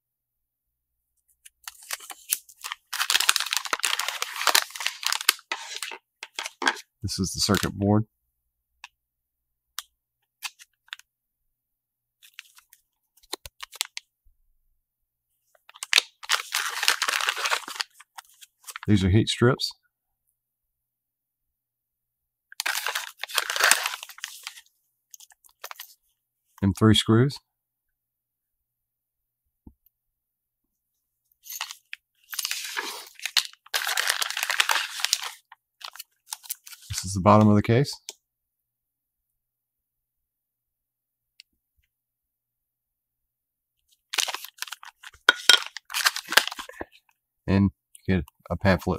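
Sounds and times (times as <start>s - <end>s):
plastic bag crinkling: 1.7s - 6.8s, 15.7s - 18.9s, 22.6s - 24.6s, 31.4s - 36.9s, 44.1s - 46.8s.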